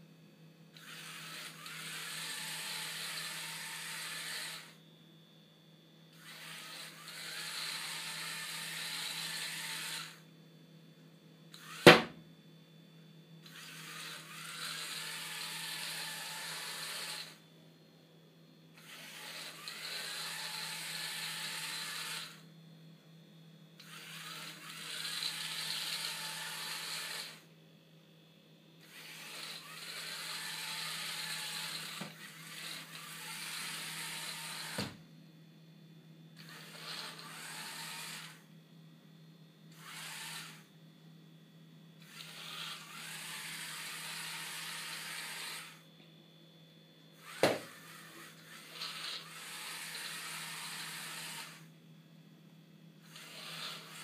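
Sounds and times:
small motors whirring: 0.8s - 4.8s, 6.2s - 10.2s, 11.5s - 12.1s, 13.4s - 17.5s, 18.8s - 22.4s, 23.8s - 27.5s, 28.8s - 35.0s, 36.4s - 38.5s, 39.7s - 40.7s, 42.0s - 45.9s, 47.2s - 51.7s, 53.0s - 54.0s
sharp knock: 11.9s - 12.2s.

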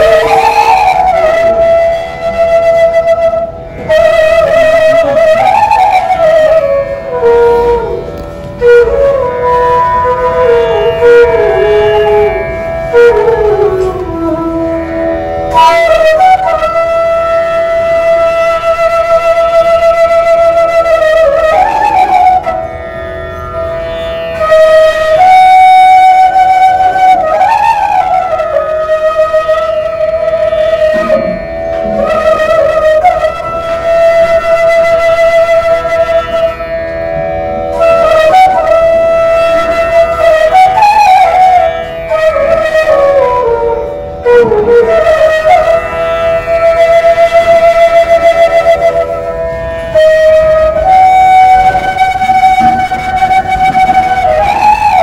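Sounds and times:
bamboo flute solo melody: 0.0s - 55.0s.

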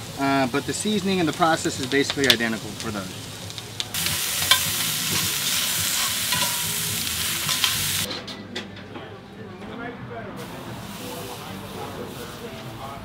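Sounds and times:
bacon sizzling in a skillet: 0.0s - 8.1s, 10.4s - 12.7s
tongs clicking against pan: 6.0s - 6.7s, 7.4s - 7.8s.

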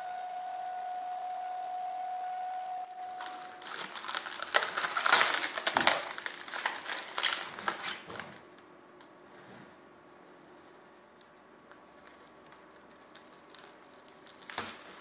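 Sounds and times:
plastic film crackling as peeled: 3.1s - 8.6s, 11.2s - 15.0s.

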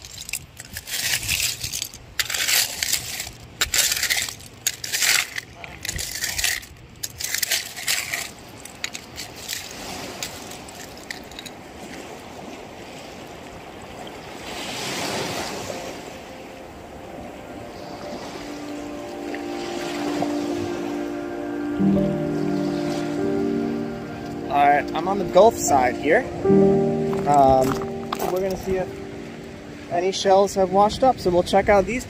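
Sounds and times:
seashells clinking and clattering: 0.0s - 12.0s, 27.1s - 28.8s.

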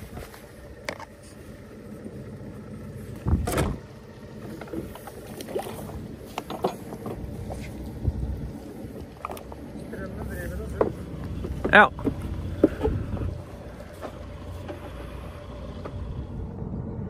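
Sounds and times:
sailboat low rumble: 0.0s - 17.0s
loud thump: 3.3s - 3.9s.

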